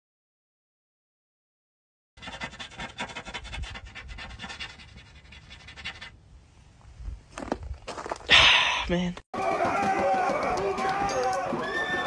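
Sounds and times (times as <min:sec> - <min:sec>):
marker scratching on a surface: 0:02.2 - 0:06.2.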